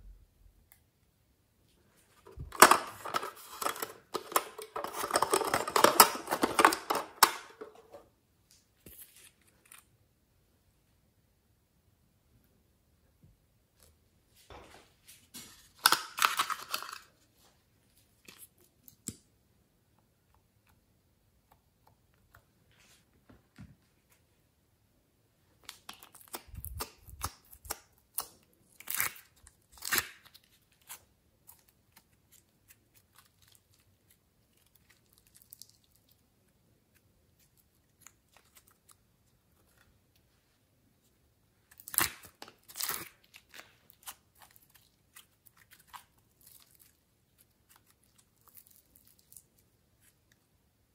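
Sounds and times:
plastic container crinkling: 0:02.2 - 0:08.0.

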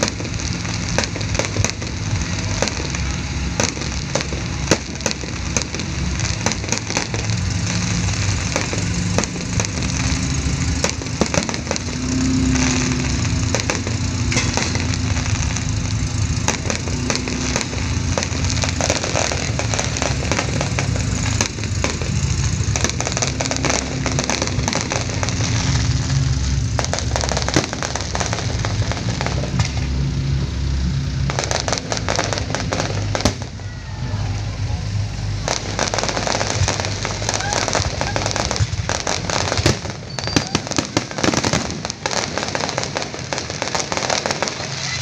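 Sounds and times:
fireworks crackling and popping: 0:00.0 - 0:45.0.

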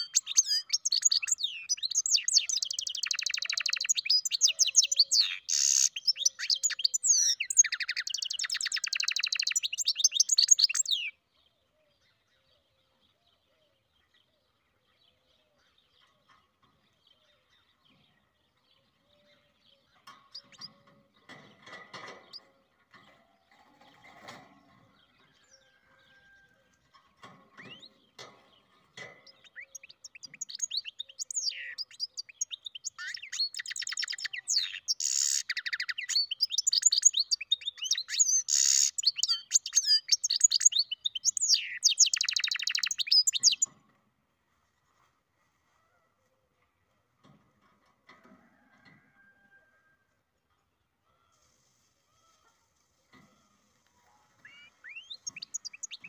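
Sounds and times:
finch twittering song: 0:00.0 - 0:11.2, 0:27.6 - 0:43.7, 0:54.4 - 0:56.0.

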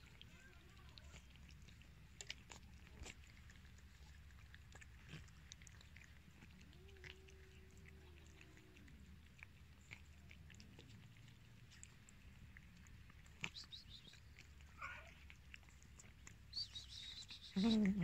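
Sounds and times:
cats chewing wet food: 0:00.0 - 0:18.0.

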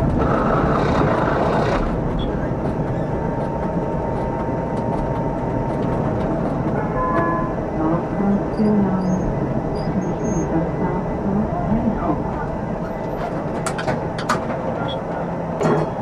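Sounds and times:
tram wheels rumbling on rails: 0:00.0 - 0:16.0.

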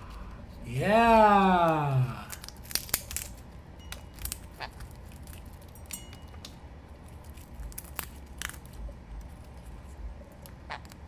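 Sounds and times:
parrot cracking peanut shell: 0:02.2 - 0:11.0.

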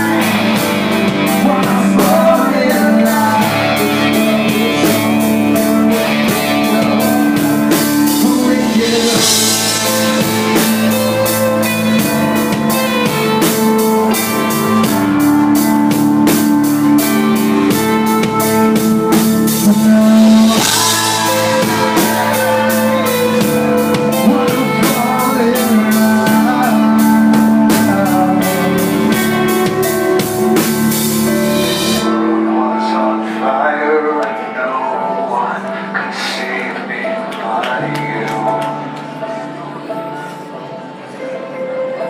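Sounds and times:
guitar chords: 0:00.0 - 0:42.0
keyboard chords: 0:00.0 - 0:42.0
drum beat: 0:03.2 - 0:32.0.

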